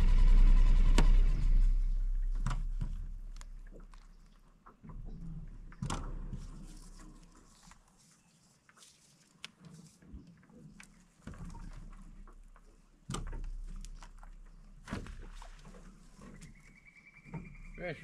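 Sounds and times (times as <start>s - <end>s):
fishing line and branches rustling: 1.4s - 17.8s.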